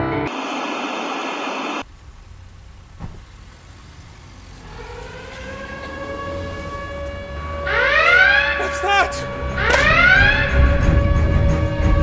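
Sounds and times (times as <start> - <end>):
static hiss: 0.3 - 4.6.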